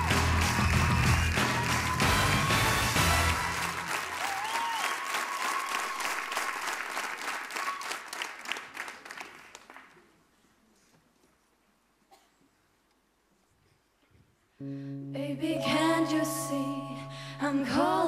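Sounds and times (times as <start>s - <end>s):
show music: 0.0s - 4.2s, 15.1s - 18.0s
studio audience applauding: 0.0s - 10.0s.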